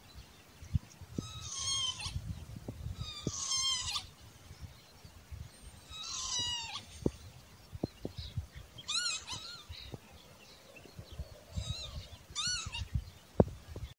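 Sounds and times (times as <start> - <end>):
lapwing calling: 1.1 - 4.2, 5.7 - 7.3, 8.2 - 13.2.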